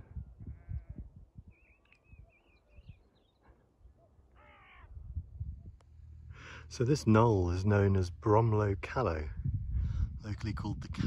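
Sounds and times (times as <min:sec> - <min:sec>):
wind rumble on microphone: 0:00.0 - 0:03.0, 0:04.8 - 0:11.0
faint birdsong: 0:00.0 - 0:08.1.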